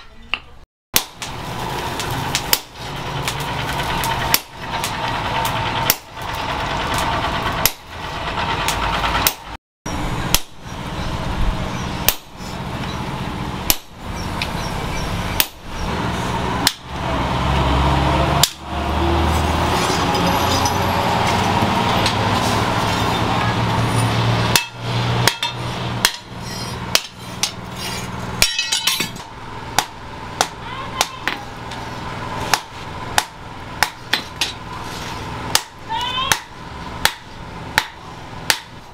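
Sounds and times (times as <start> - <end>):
hammer striking steel on anvil: 10.3 - 10.6, 12.0 - 12.3, 15.4 - 15.6, 18.4 - 18.6, 24.5 - 31.4, 35.5 - 38.8.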